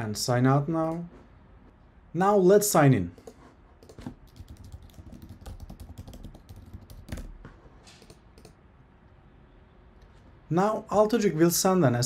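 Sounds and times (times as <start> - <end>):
computer keyboard typing: 3.1 - 8.6.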